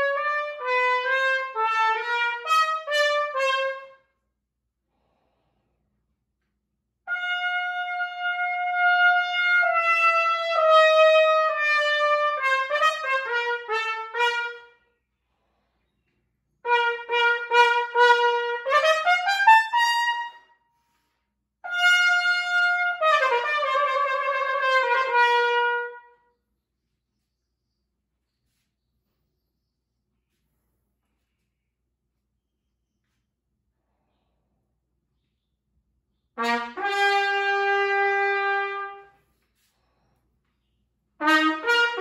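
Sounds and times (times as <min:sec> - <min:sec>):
solo trumpet playing: 0:00.0 - 0:04.2, 0:07.1 - 0:14.8, 0:16.6 - 0:20.6, 0:21.6 - 0:26.3, 0:36.4 - 0:39.2, 0:41.2 - 0:42.0.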